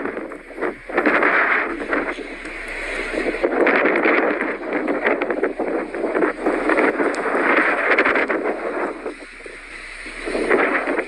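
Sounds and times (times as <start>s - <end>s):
blizzard wind gusting: 0.0s - 11.0s
sharp ticks: 3.5s - 11.0s.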